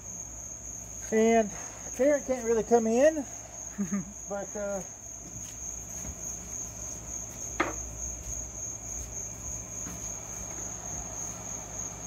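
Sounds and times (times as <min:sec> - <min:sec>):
high-pitched insect-like trill: 0:00.0 - 0:12.0
sharp knock: 0:07.6 - 0:07.8.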